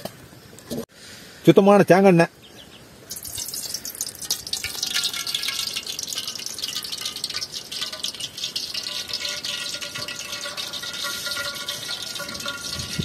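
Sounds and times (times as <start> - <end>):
oil sizzling in a pan: 3.1 - 13.0.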